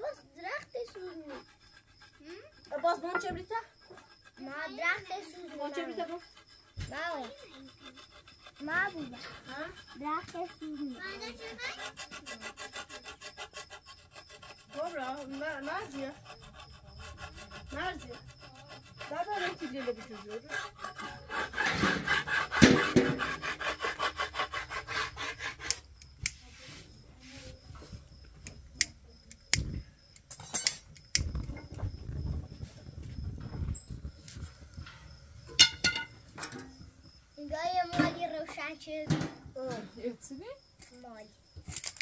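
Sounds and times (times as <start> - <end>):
fast rubbing strokes: 0.7 - 28.0
scattered knocks: 2.8 - 3.6, 21.0 - 23.5, 34.8 - 37.0, 37.8 - 40.1.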